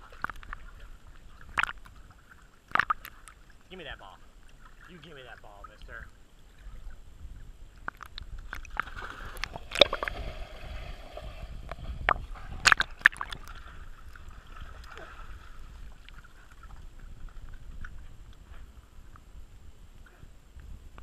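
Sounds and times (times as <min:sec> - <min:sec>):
muffled water sloshing and splashing: 0:00.0 - 0:19.4.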